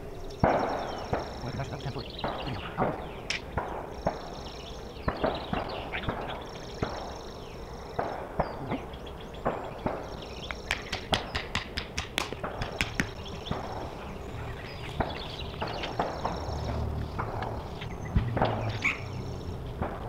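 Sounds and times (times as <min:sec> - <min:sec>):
sharp knocks: 0:09.8 - 0:13.7.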